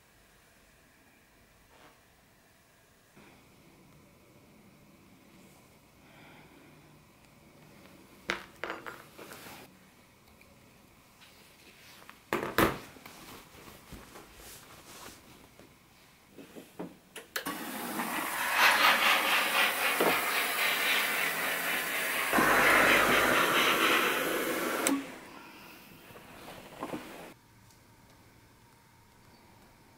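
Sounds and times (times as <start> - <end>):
steam iron hissing: 17.5 - 27.4.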